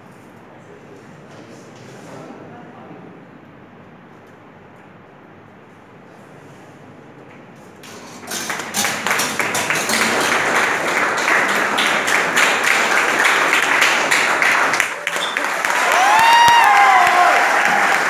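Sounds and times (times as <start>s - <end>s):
audience applauding: 8.2s - 18.0s.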